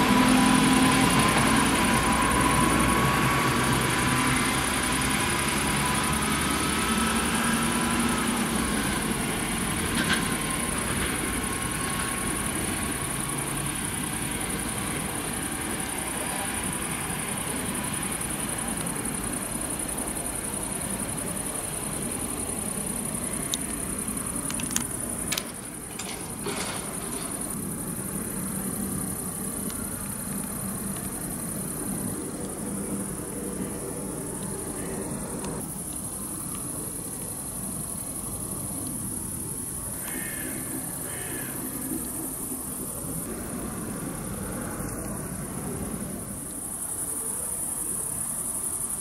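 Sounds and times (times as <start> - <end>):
crickets chirping: 0.0 - 49.0
sharp clicks: 24.4 - 27.3.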